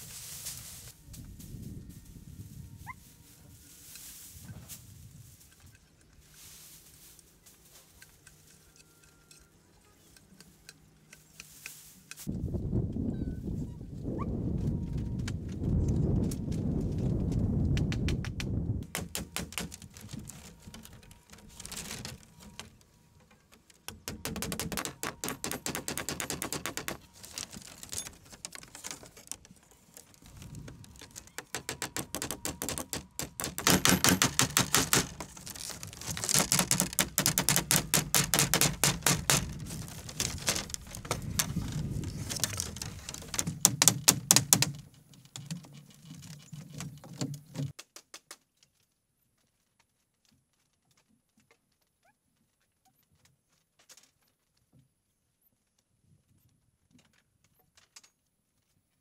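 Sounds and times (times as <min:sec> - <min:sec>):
rapid sharp taps: 0:36.2 - 0:39.6.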